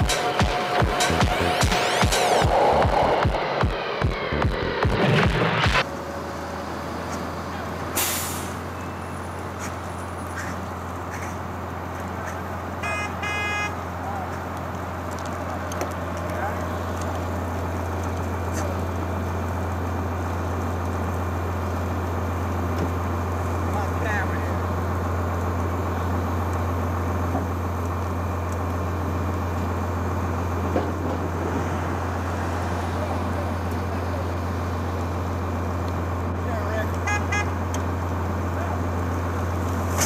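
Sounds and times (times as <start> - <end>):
fire engine pump droning: 5.8 - 40.0
short horn-like tones: 12.8 - 13.8, 37.0 - 37.6
hose spraying water: 39.5 - 40.0.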